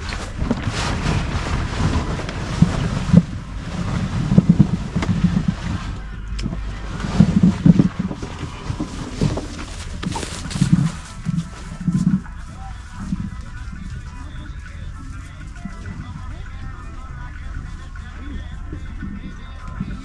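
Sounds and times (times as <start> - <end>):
wind buffeting microphone: 0.0 - 14.1.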